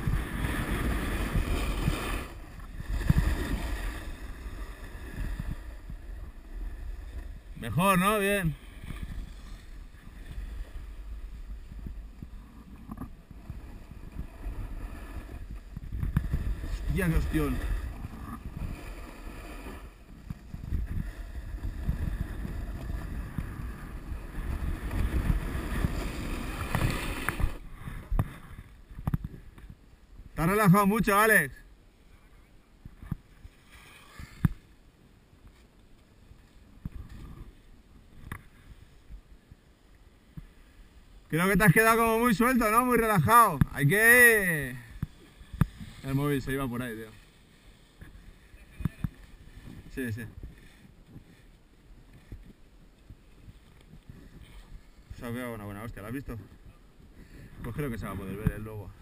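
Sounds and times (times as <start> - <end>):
snowboard scraping over snow: 0.0 - 29.5, 41.4 - 59.0
wind rumbling on microphone: 0.0 - 31.0, 32.2 - 59.0.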